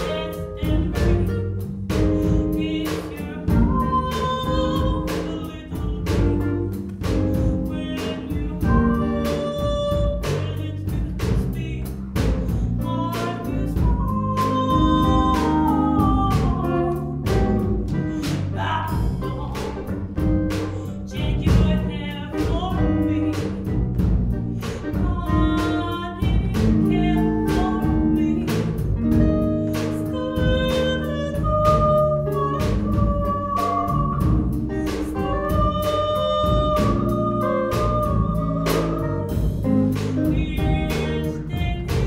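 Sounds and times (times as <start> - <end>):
drum kit beat: 0.0 - 42.0
electric bass: 0.0 - 42.0
woman singing: 0.0 - 42.0
electric guitars: 22.3 - 42.0.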